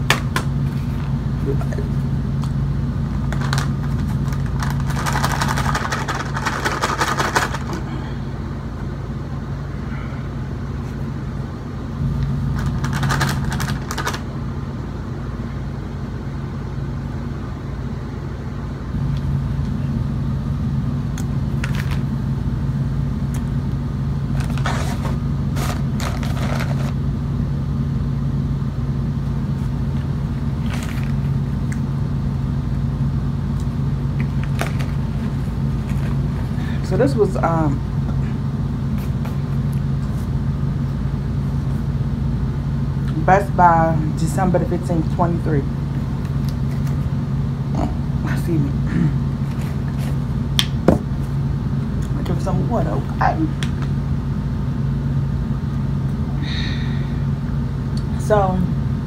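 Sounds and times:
low hum: 0.0 - 59.0
plastic bag crinkling: 3.2 - 7.8, 12.5 - 14.3, 24.3 - 27.0.

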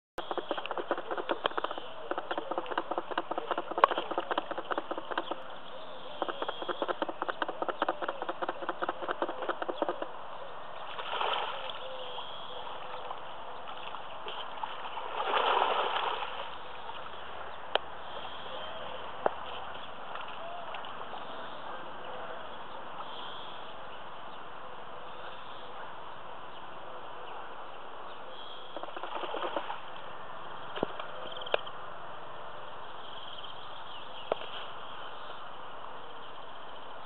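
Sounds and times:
rapid small clicks: 0.2 - 5.4, 6.2 - 10.1
fish splashing in water: 13.7 - 17.0.

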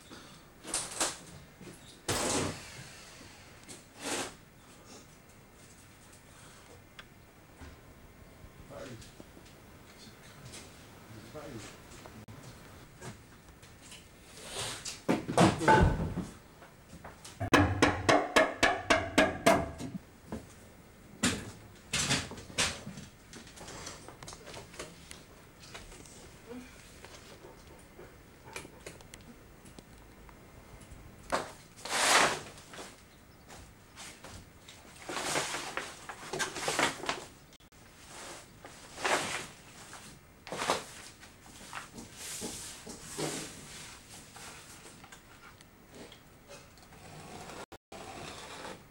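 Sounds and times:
hammer blows on timber: 17.4 - 20.0.

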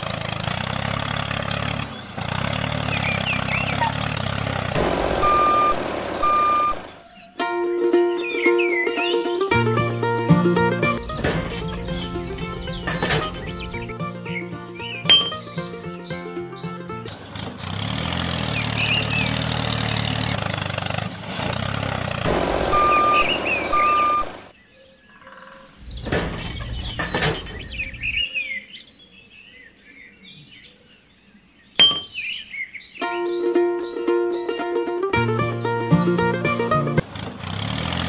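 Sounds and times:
engine running: 0.0 - 7.0, 9.4 - 24.6, 34.8 - 38.0
birds chirping: 0.0 - 7.5, 8.2 - 38.0
burst of noise: 4.7 - 7.0, 22.2 - 24.5
short beeps: 5.2 - 6.8, 22.7 - 24.4.

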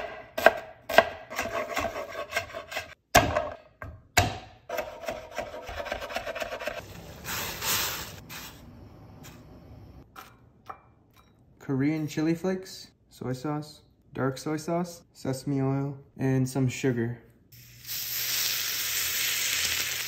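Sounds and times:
knife chopping on wooden board: 0.0 - 6.7.

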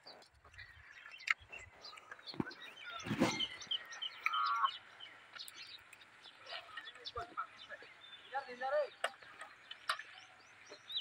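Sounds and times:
outdoor background noise: 0.0 - 11.0
small birds chirping: 0.0 - 11.0
bird trilling call: 2.4 - 4.9.

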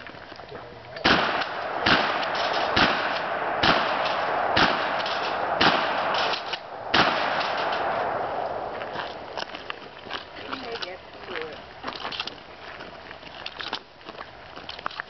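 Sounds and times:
shotgun shots with echo: 1.0 - 8.6.

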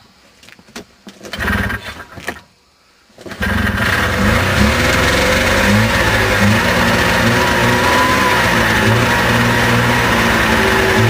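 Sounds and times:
pull starter cord: 3.2 - 11.0
snowmobile engine running: 3.4 - 11.0.

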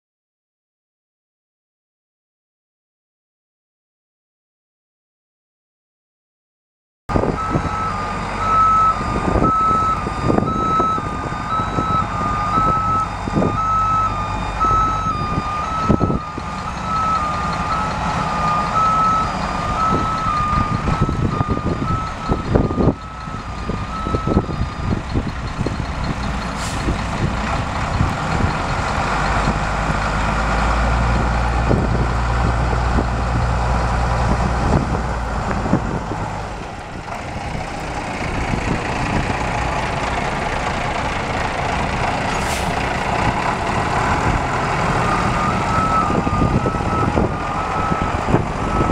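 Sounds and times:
diesel truck engine running: 7.1 - 48.9
reversing alarm beeping: 7.2 - 27.0, 44.0 - 48.9.

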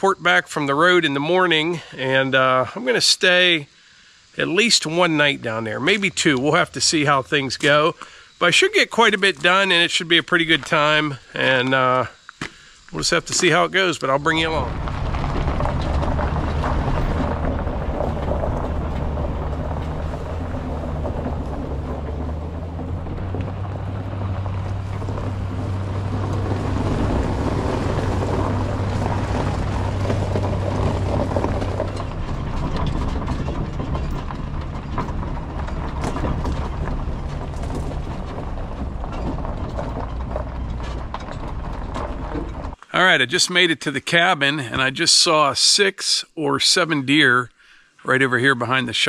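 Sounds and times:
tyre and road noise: 4.3 - 45.3
light rattles: 12.8 - 42.8
low engine drone: 13.0 - 42.8.

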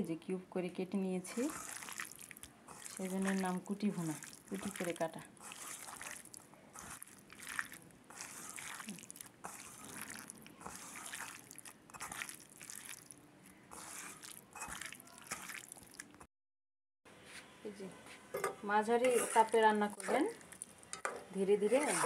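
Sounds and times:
hands squelching raw meat: 1.4 - 16.2.

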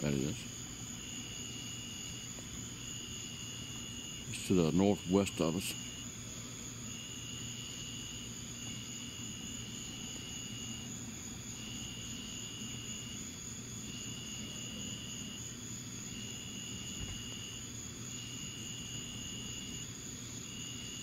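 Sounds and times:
steady high whine: 0.0 - 13.1
insects trilling: 0.0 - 21.0.

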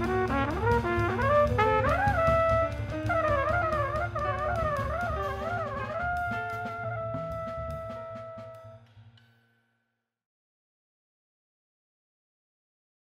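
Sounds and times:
bass: 0.0 - 8.7
trumpet playing: 0.0 - 8.9
drums: 0.0 - 9.7.

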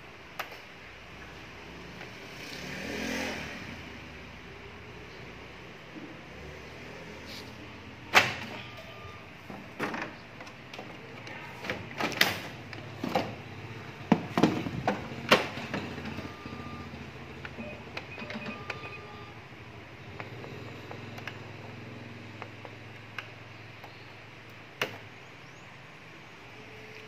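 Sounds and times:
short faint beeps: 8.6 - 9.3, 16.2 - 16.9.

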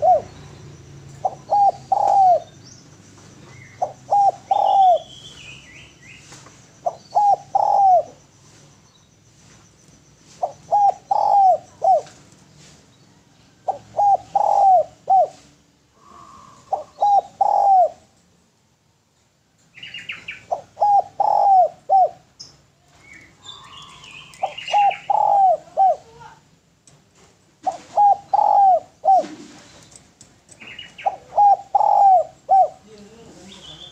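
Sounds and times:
dove cooing: 0.0 - 2.6, 3.4 - 5.1, 6.8 - 8.6, 10.3 - 12.3, 13.1 - 18.2, 20.1 - 22.3, 23.2 - 26.4, 27.6 - 29.8, 30.5 - 33.9
bird chirps: 0.0 - 12.1, 19.7 - 25.7, 27.7 - 33.9.

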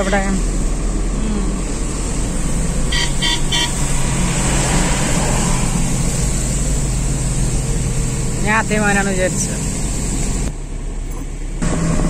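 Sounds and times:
car horn beeps: 0.0 - 0.4, 2.9 - 3.9
car road noise from inside: 0.0 - 12.0.

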